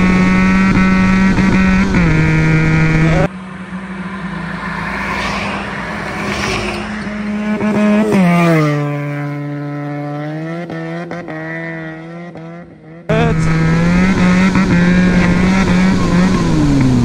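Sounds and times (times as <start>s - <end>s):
motorcycle engine at high revs: 0.0s - 3.3s, 7.1s - 17.0s
motorcycle passing by: 0.0s - 17.0s
exhaust crackles: 13.1s - 17.0s.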